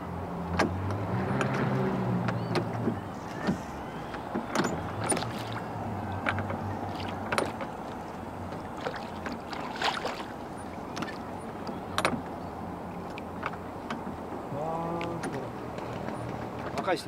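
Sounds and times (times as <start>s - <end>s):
water against a boat hull: 0.4s - 17.0s
sharp knocks on a boat: 0.5s - 12.4s.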